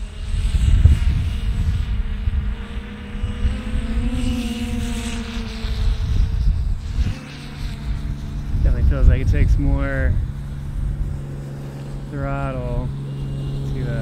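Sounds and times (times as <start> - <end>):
quadcopter motors whining: 0.0 - 14.0
low rumble: 5.7 - 14.0.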